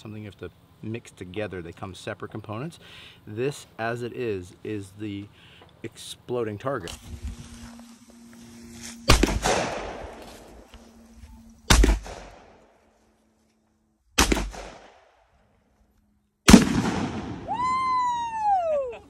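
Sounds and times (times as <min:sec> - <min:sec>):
target exploding: 0:09.1 - 0:10.0, 0:16.5 - 0:17.6
gunshot blasts with echo: 0:09.1 - 0:10.1, 0:11.7 - 0:12.5, 0:14.2 - 0:15.0, 0:16.5 - 0:17.5.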